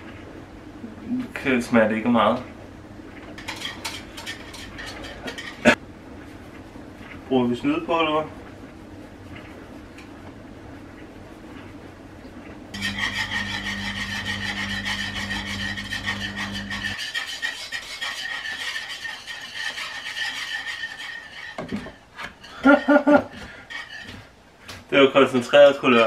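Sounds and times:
low steady hum: 0:00.0 - 0:17.0
whisk scraping in pan: 0:03.3 - 0:05.8, 0:12.8 - 0:24.4.

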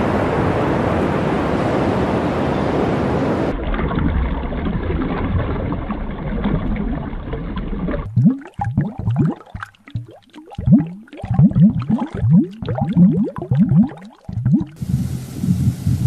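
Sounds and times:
surf rushing: 0:00.0 - 0:03.6
water bubbling: 0:03.5 - 0:14.8
underwater hiss: 0:14.7 - 0:16.0.

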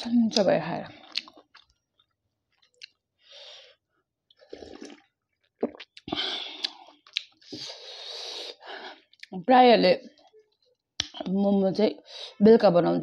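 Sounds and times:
slurping soup: 0:04.3 - 0:09.1.

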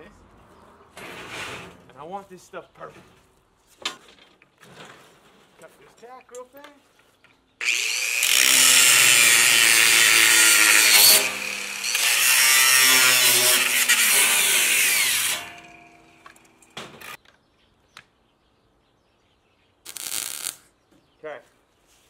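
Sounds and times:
angle grinder cutting steel: 0:07.6 - 0:17.2, 0:19.9 - 0:20.6.

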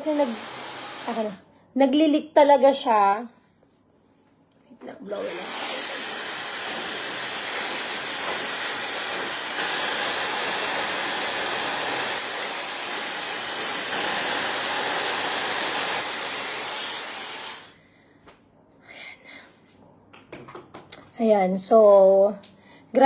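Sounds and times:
hair dryer blowing: 0:00.0 - 0:01.4, 0:05.1 - 0:17.8.

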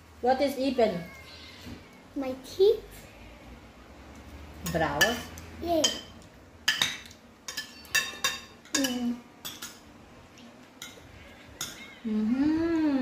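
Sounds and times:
cutlery clinking on plates: 0:05.8 - 0:09.9, 0:10.8 - 0:11.9.

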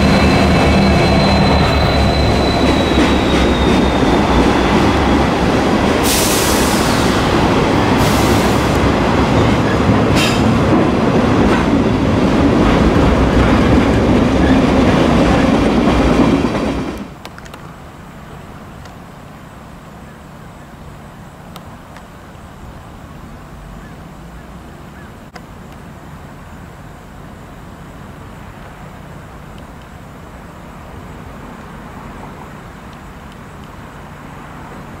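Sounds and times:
diesel locomotive rumbling: 0:00.0 - 0:35.0
faint click: 0:29.5 - 0:30.0.

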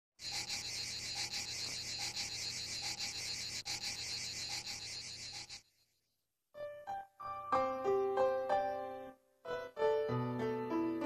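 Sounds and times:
insects chirping: 0:00.2 - 0:06.2
short low insect call: 0:00.2 - 0:06.2.

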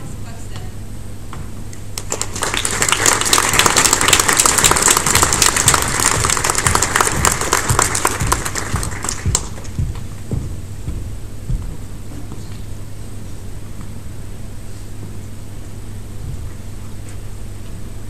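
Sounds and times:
audience applauding: 0:02.0 - 0:09.8.

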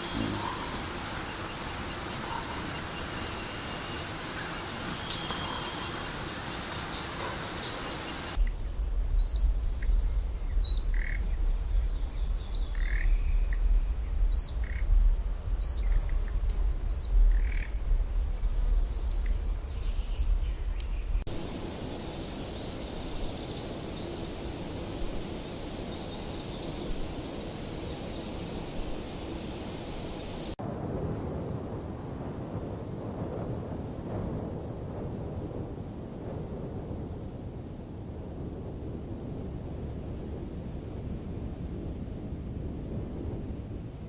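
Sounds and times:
lower calls: 0:00.0 - 0:08.6.

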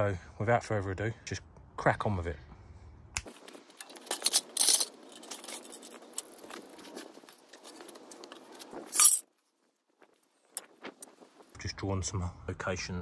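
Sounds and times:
handling clicks and rustles: 0:03.2 - 0:11.4.

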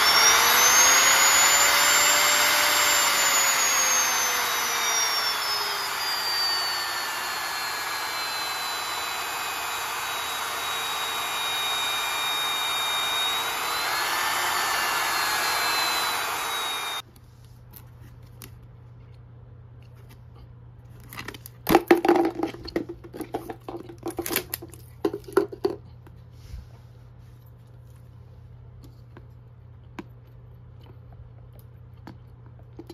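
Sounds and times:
router motor whine: 0:00.0 - 0:17.0.

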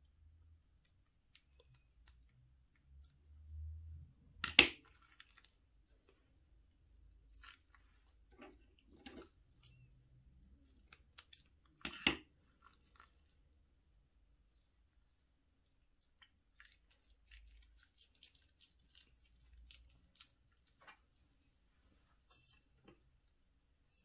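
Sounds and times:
slime squishing and crackling: 0:04.4 - 0:06.2, 0:07.2 - 0:13.5, 0:14.8 - 0:21.2.

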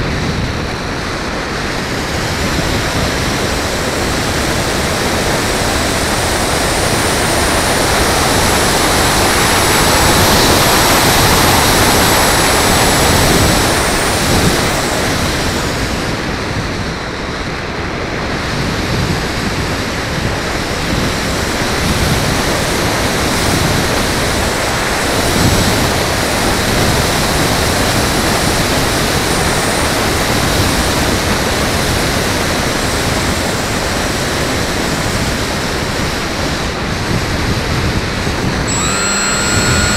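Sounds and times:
faint high whine: 0:38.7 - 0:39.9.

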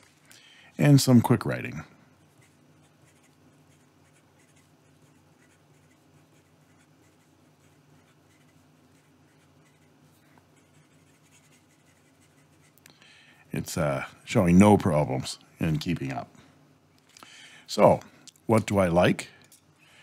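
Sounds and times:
fountain pen scratching on paper: 0:02.2 - 0:12.8.

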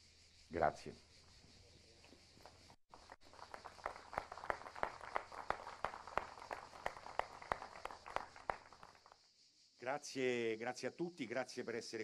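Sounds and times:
audience applause: 0:02.9 - 0:09.2.

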